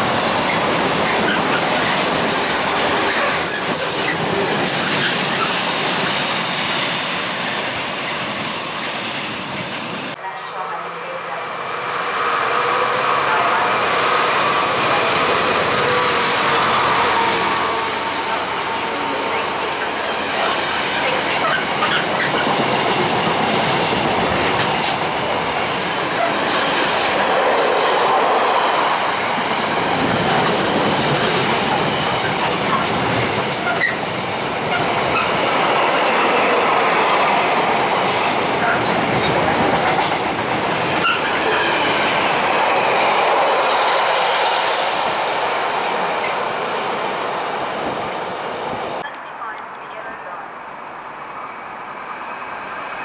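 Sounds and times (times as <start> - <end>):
train wheels rumbling on rails: 0.0 - 10.2, 10.8 - 49.2
wheel squeals: 33.6 - 34.0.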